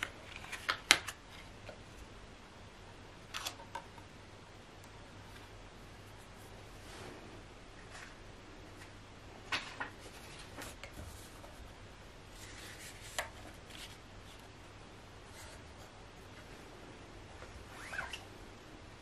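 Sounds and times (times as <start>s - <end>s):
soft rubbing: 5.2s - 8.9s, 10.0s - 14.4s.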